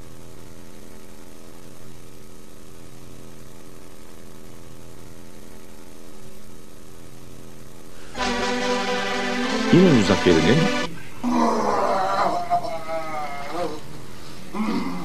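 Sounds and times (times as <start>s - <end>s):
low electrical buzzing hum: 0.0s - 15.0s.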